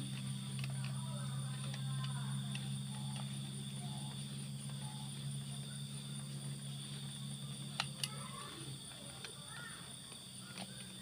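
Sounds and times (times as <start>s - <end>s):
steady low hum: 0.0s - 11.0s
sharp metal clicks: 7.5s - 11.0s.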